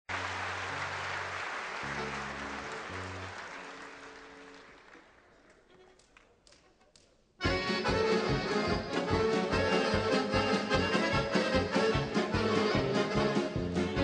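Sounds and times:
audience applauding: 0:00.1 - 0:06.8
band holding low notes: 0:07.4 - 0:14.0.

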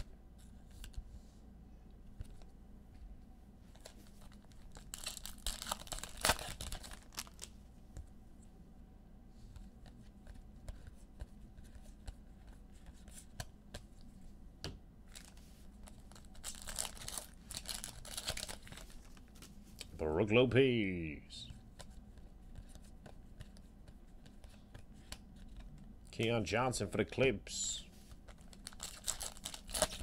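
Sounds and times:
foil wrappers tearing and crinkling: 0:04.2 - 0:07.5, 0:16.0 - 0:19.2, 0:28.5 - 0:30.0.

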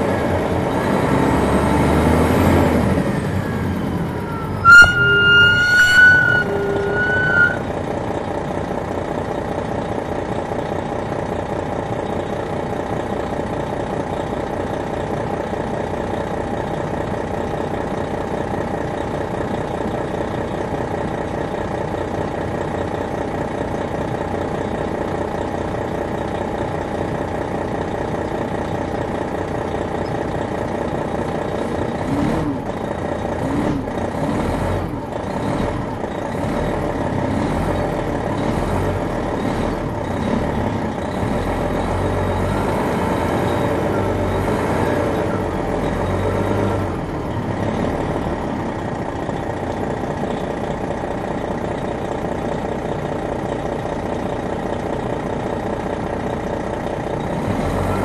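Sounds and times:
diesel engine droning: 0:00.0 - 0:58.0
loud high tone: 0:04.0 - 0:07.7.

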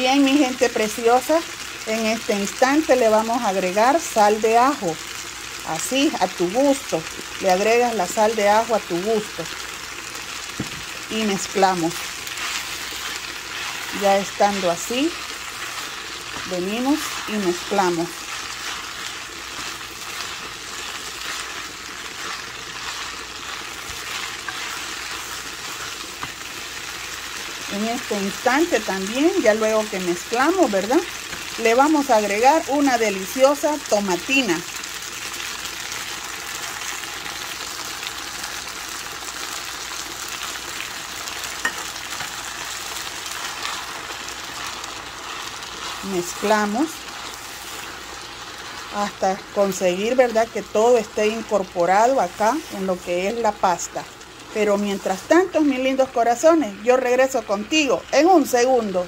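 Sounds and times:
food sizzling in a frying pan: 0:00.0 - 0:59.0
spatula stirring pasta: 0:08.9 - 0:33.9, 0:35.3 - 0:56.4.

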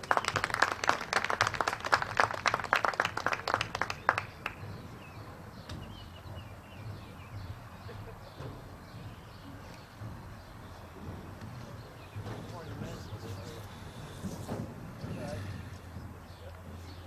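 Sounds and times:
applause: 0:00.0 - 0:04.6.

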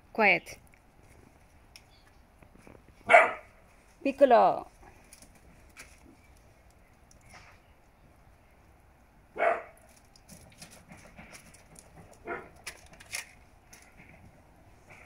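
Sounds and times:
puppy barking: 0:03.0 - 0:03.6, 0:09.4 - 0:09.8, 0:12.2 - 0:12.6.

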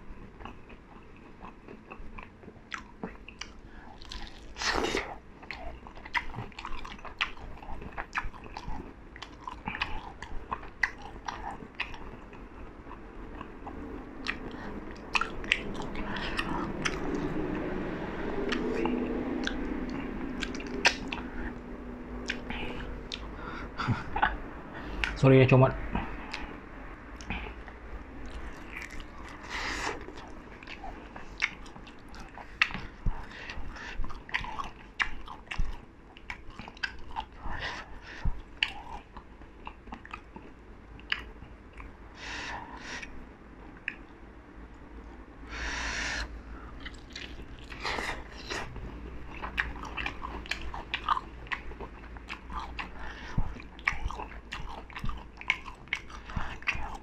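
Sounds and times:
biting and chewing chicken: 0:00.3 - 0:17.8, 0:27.2 - 0:41.9, 0:46.0 - 0:57.0.

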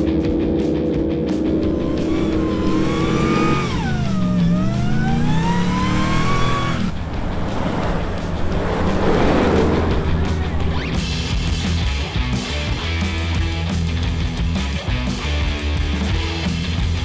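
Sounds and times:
truck engine revving: 0:01.2 - 0:13.6.

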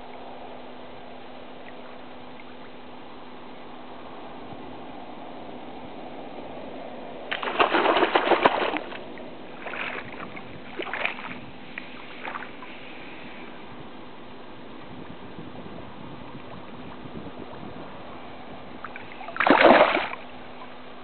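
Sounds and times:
faint steady hum: 0:00.0 - 0:21.0
fish thrashing in water: 0:07.3 - 0:11.4, 0:18.9 - 0:20.3.

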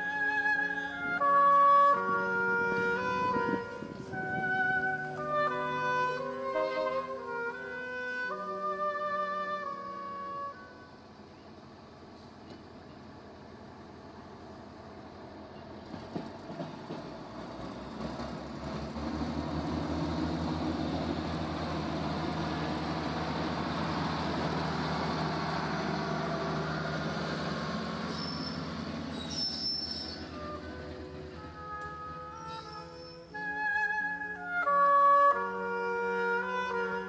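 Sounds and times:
diesel railcar engine pulsing: 0:00.0 - 0:37.0
wheel and track noise: 0:11.0 - 0:35.5.

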